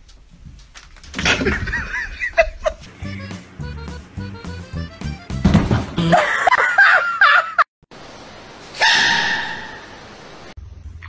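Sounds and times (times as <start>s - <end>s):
quick tune over a bass line: 3.0s - 5.5s.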